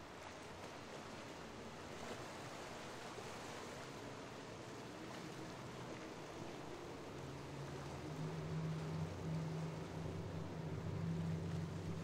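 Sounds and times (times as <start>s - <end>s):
faint boat engine hum: 0.0s - 12.0s
waves and surf: 0.0s - 12.0s.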